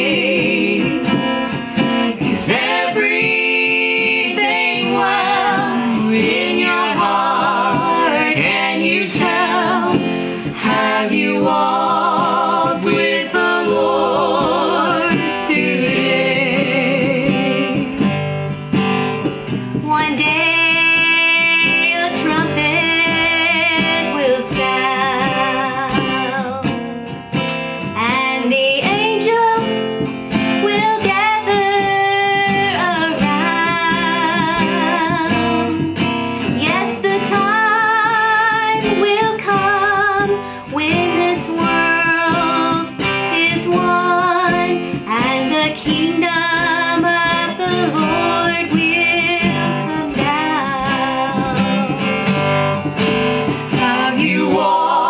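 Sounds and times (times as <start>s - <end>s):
hymn sung in harmony: 0.0s - 1.2s, 2.2s - 17.8s, 53.7s - 55.0s
strummed acoustic guitar: 0.0s - 55.0s.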